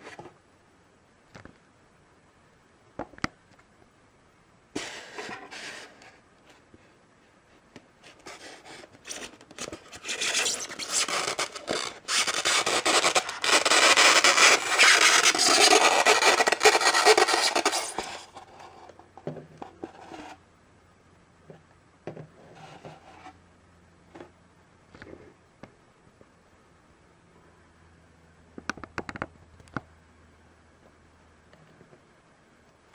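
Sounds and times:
foam rubbing scrape: 4.8s - 6.1s, 8.0s - 18.9s, 19.8s - 20.4s.

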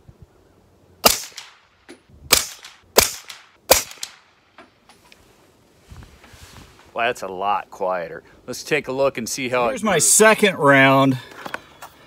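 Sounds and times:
suppressed gunshots: 1.0s - 1.6s, 2.3s - 4.4s.

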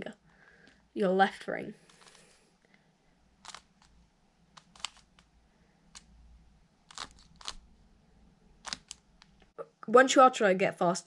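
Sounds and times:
puzzle cube clicking: 1.8s - 2.2s, 3.4s - 5.3s, 5.9s - 6.1s, 6.8s - 7.7s, 8.6s - 9.5s.

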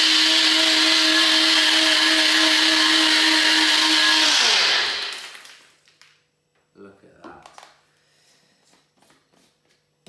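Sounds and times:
blender motor whining: 0.0s - 5.6s.

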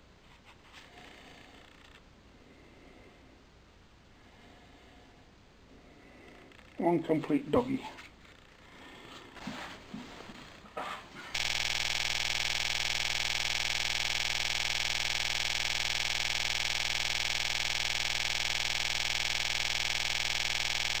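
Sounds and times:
electronic buzzing tone: 11.4s - 21.0s.

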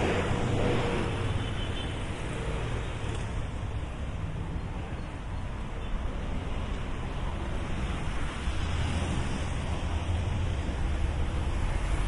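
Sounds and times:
vehicle passing by: 0.0s - 3.6s
road traffic rumble: 0.0s - 12.0s.

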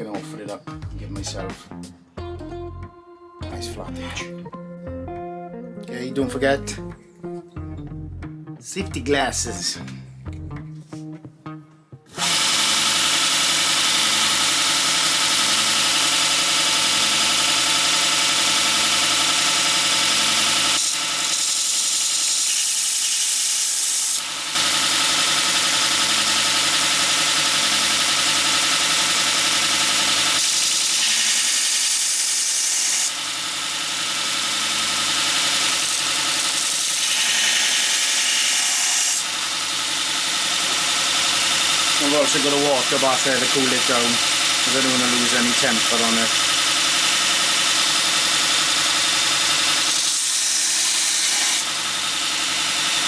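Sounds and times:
belt sharpener grinding steel: 12.2s - 53.0s.

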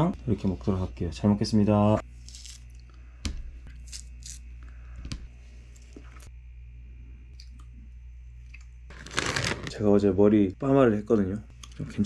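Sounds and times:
steady low hum: 0.0s - 12.0s
soft tearing: 8.9s - 9.8s.

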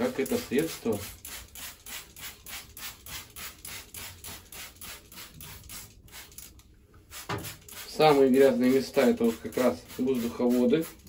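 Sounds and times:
trigger spray bottle spraying: 0.0s - 11.0s.

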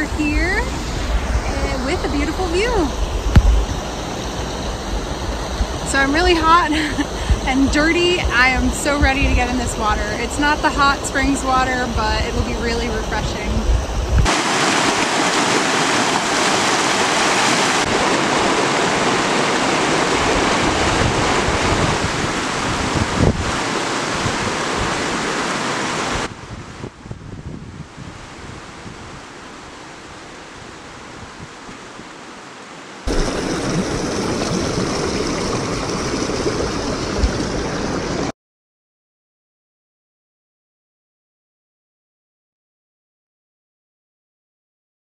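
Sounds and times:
wind buffeting microphone: 0.0s - 29.4s, 33.1s - 38.3s
rapids rushing over rocks: 14.2s - 26.3s, 32.2s - 38.3s.

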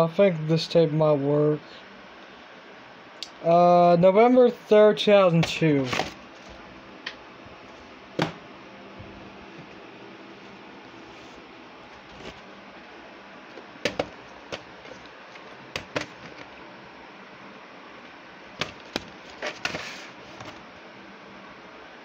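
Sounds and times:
plastic tape cases clacking: 13.5s - 16.6s, 18.6s - 19.8s.

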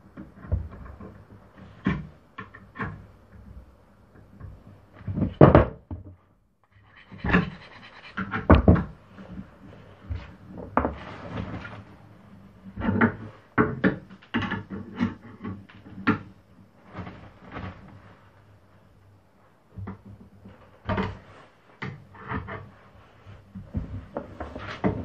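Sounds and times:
short scraping rub: 6.7s - 8.5s.

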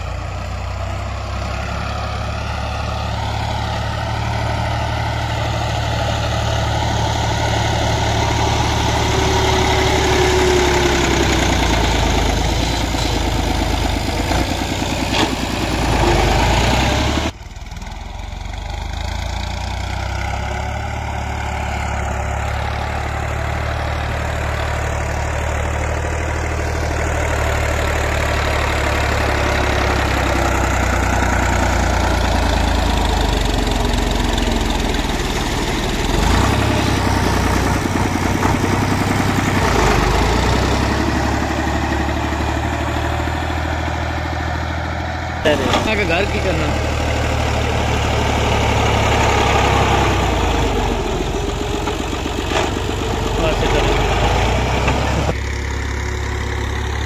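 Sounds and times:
tractor diesel engine running: 0.0s - 57.0s
blade pushing soil: 48.4s - 55.4s.

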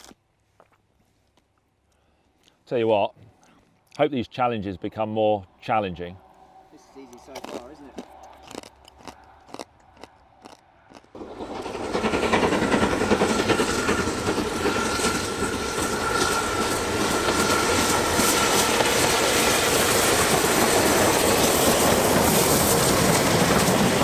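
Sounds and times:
steam train passing: 5.0s - 8.4s, 11.2s - 24.0s.

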